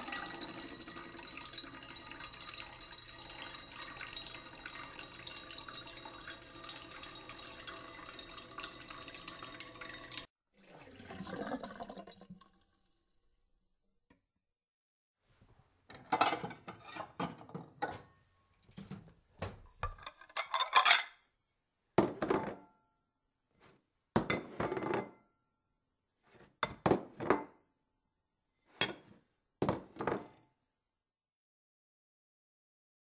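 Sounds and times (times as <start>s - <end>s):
toy pots and pans clanging: 19.8s - 21.2s.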